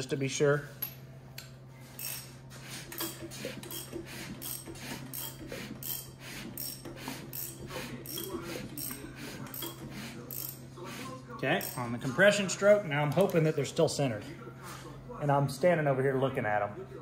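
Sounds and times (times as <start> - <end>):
ratchet wrench clicking: 2.0 - 2.3, 3.0 - 10.6, 11.6 - 11.8.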